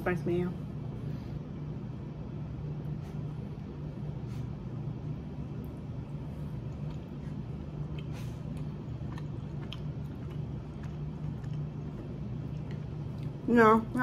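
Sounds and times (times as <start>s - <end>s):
low background hum: 0.0s - 14.0s
quiet chewing: 2.8s - 13.5s.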